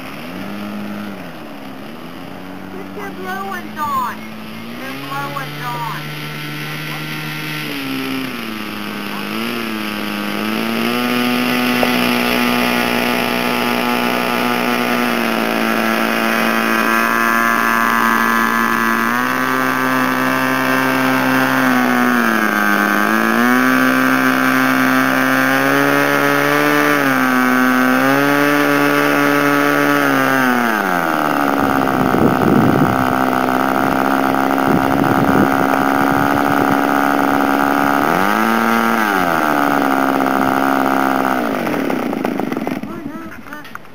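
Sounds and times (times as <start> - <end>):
model airplane engine revving: 0.0 - 43.9
wind on microphone: 31.5 - 37.3.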